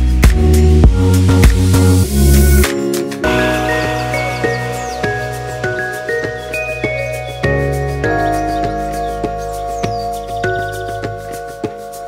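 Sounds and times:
deep bass line: 0:00.0 - 0:11.4
electronic music drum hits: 0:00.2 - 0:02.0.

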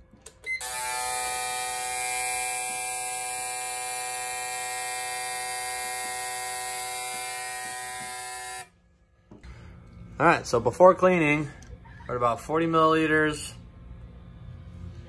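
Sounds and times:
fuel injectors buzzing: 0:00.6 - 0:10.2.

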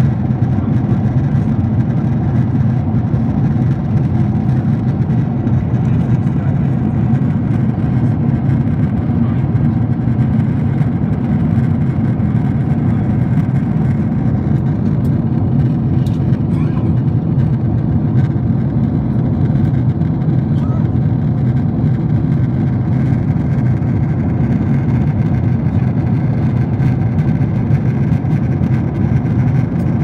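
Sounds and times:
airliner cabin engine drone: 0:00.0 - 0:30.0.

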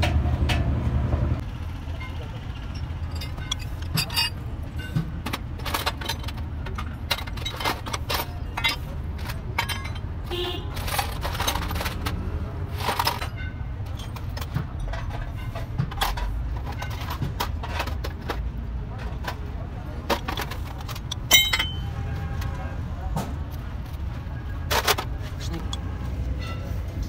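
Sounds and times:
metal gear parts clinking: 0:02.0 - 0:10.2, 0:20.1 - 0:22.0.

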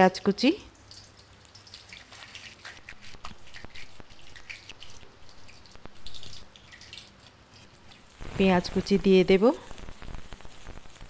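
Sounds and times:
spices crackling in hot oil: 0:00.0 - 0:11.0
sharp pops and ticks: 0:09.7 - 0:11.0.

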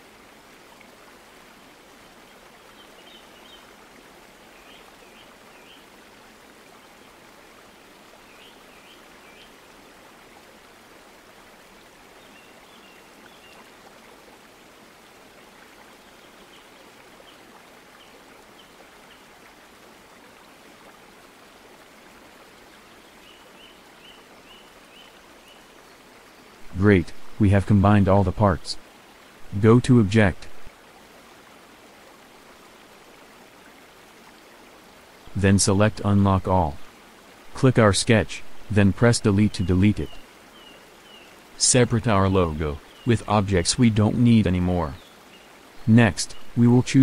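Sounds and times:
microphone background hiss: 0:22.8 - 0:31.4, 0:35.1 - 0:47.0.

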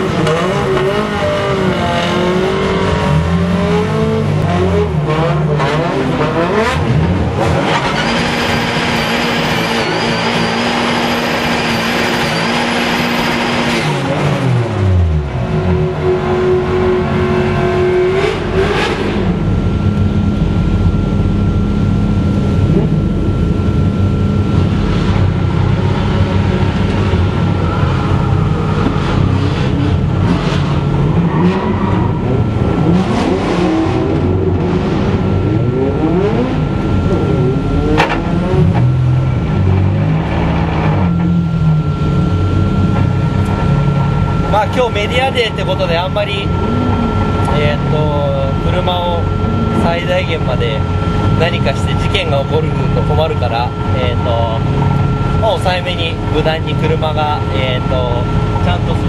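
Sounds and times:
car engine revving: 0:00.0 - 0:59.0
tyre squeal: 0:07.7 - 0:13.9.

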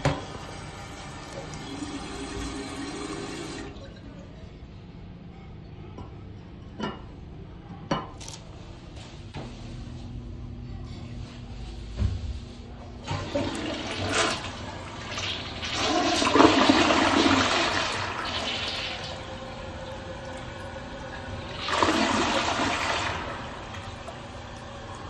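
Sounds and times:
water rushing and draining: 0:00.0 - 0:04.3, 0:13.1 - 0:25.0
toilet flushing: 0:00.0 - 0:04.4, 0:13.0 - 0:25.0.

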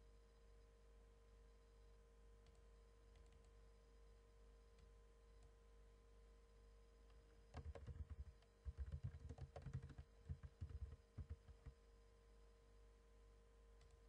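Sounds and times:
low steady hum: 0:00.0 - 0:14.0
typing on computer keyboard: 0:07.5 - 0:11.8.

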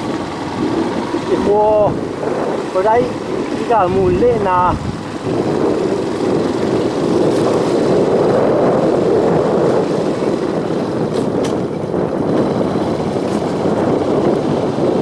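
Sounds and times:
vehicle on dirt road: 0:00.0 - 0:15.0.

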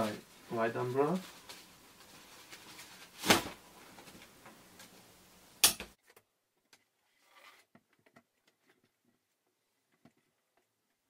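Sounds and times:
photo umbrella rustling: 0:00.0 - 0:05.0.

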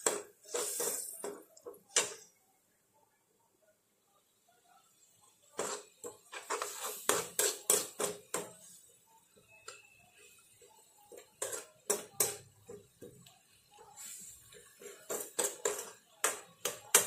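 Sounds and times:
metal spoon scraping frying pan: 0:00.0 - 0:02.3, 0:05.6 - 0:08.9, 0:10.1 - 0:12.8, 0:13.9 - 0:17.0.

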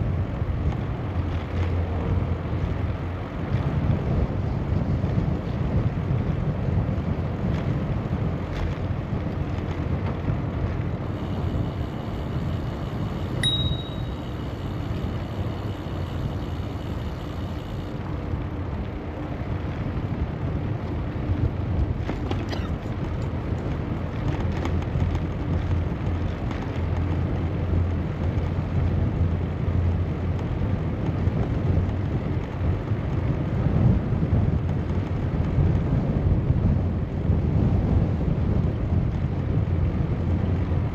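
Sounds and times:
wind and bicycle tyre noise: 0:00.0 - 0:40.9
bicycle bell ding: 0:13.4 - 0:14.6.

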